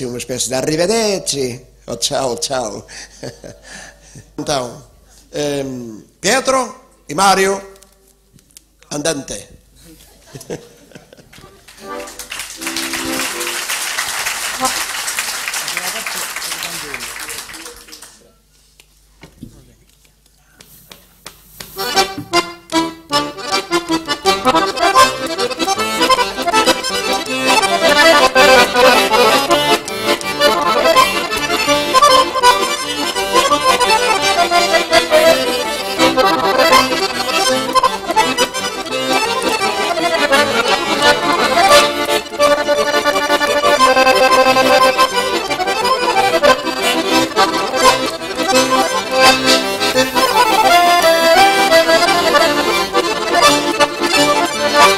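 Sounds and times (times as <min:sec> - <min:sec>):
accordion duet: 0:11.4 - 0:17.7, 0:21.6 - 0:54.9.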